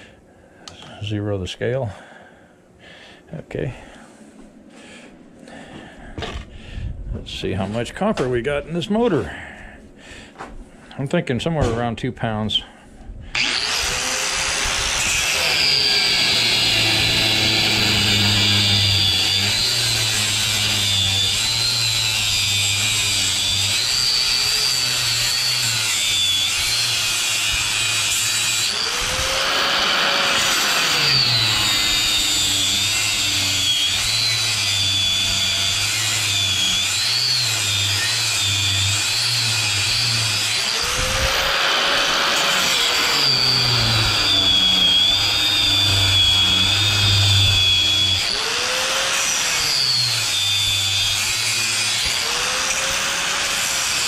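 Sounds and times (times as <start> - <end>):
angle grinder cutting copper: 13.4 - 54.0.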